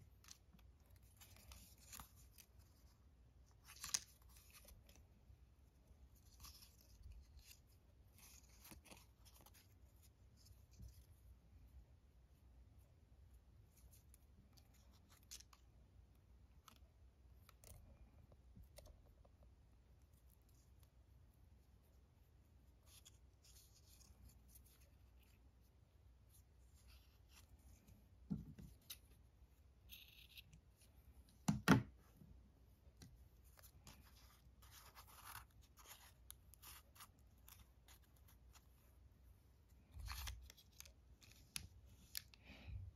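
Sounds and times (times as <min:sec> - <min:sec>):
paper handled: 0:00.0 - 0:11.1, 0:32.9 - 0:39.1
twine rustling through paper: 0:00.0 - 0:11.2, 0:33.0 - 0:42.8.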